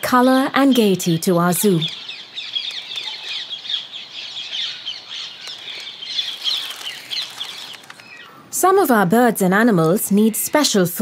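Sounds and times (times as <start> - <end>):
parakeets calling: 0.6 - 8.4.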